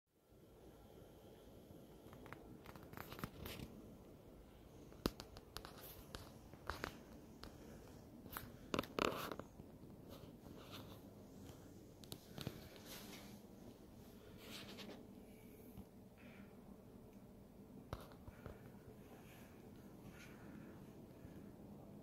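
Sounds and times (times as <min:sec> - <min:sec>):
faint rustling: 0:01.9 - 0:16.5.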